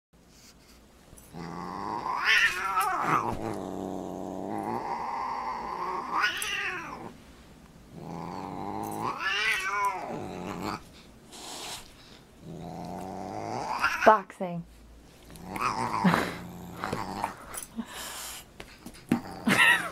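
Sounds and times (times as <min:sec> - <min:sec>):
cat growling and yowling: 0:01.3 - 0:07.2, 0:08.0 - 0:10.8, 0:12.4 - 0:14.1, 0:15.4 - 0:17.4.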